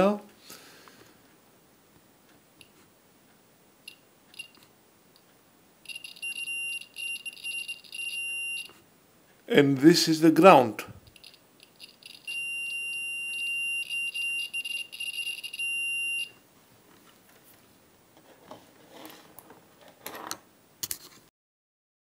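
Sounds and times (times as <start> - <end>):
multimeter continuity beep: 3.9 - 4.6, 5.8 - 8.8, 11.1 - 16.4
faint handling noises: 16.8 - 21.3.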